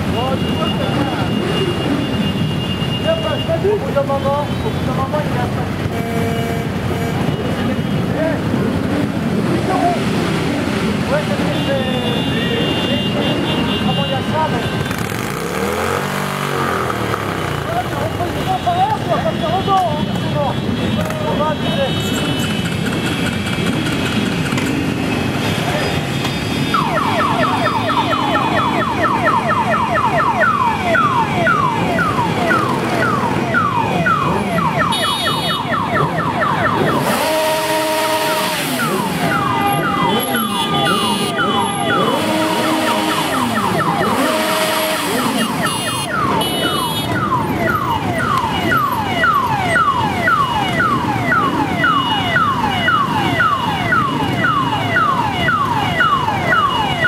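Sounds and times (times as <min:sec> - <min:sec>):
horns sounding: 0:00.0 - 0:09.0, 0:25.0 - 0:49.4
motorcycle engines revving: 0:00.0 - 0:57.0
electronic siren wail: 0:26.7 - 0:57.0.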